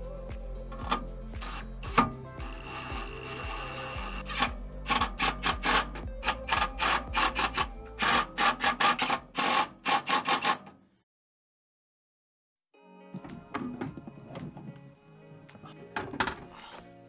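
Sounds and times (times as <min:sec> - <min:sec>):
impact driver motor whine: 0:01.4 - 0:05.0
impact driver hammering bursts: 0:01.4 - 0:10.7.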